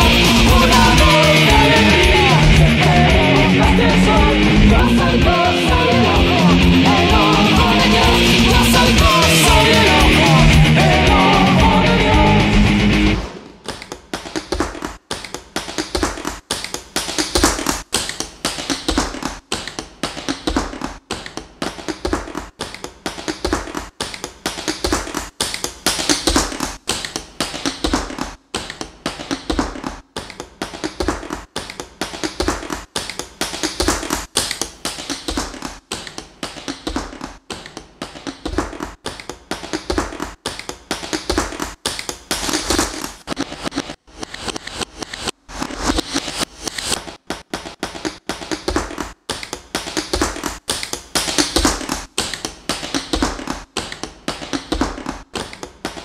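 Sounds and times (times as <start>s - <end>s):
industrial electronic music: 0.0s - 13.6s.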